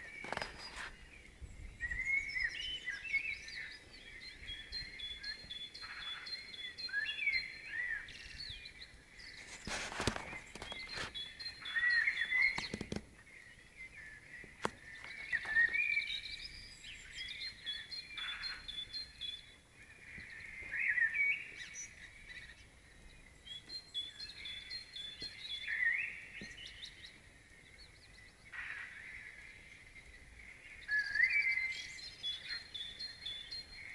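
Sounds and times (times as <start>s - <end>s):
songbird singing: 0.0s - 33.9s
sharp clicks: 12.4s - 13.1s.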